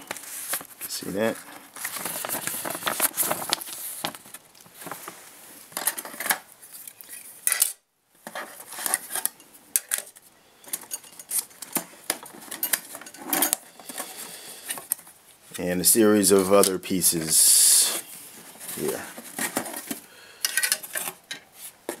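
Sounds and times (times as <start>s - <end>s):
hands rummaging in cardboard box: 0.0s - 5.2s, 17.9s - 20.1s
paper rustling: 0.0s - 5.3s, 16.5s - 20.0s.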